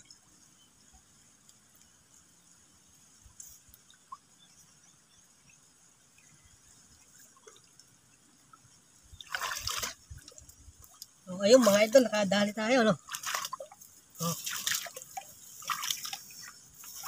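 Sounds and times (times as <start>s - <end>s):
faint water drips: 0.0s - 17.0s
water splash: 9.2s - 17.0s.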